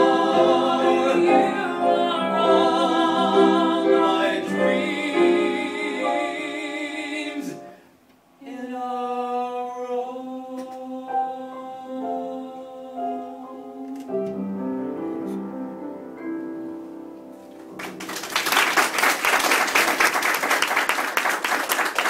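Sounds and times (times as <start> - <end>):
upright piano chords: 0.0 - 7.7, 11.2 - 18.4
small group applauding: 17.7 - 22.0.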